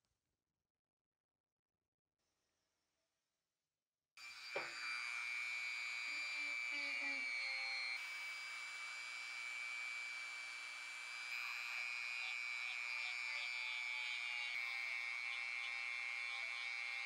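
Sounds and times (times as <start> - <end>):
rotary tool high-pitched whine: 4.2 - 17.0.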